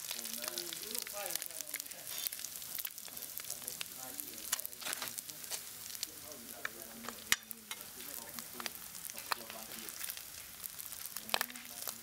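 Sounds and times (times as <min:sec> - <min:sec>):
oil sizzling in a wok: 0:00.0 - 0:12.0
metal spatula stirring: 0:06.6 - 0:10.2.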